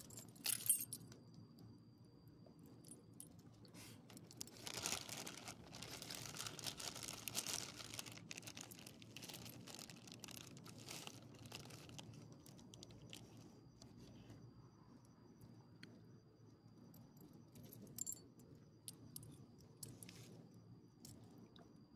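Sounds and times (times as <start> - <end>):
crinkling and crackling: 3.3 - 14.3.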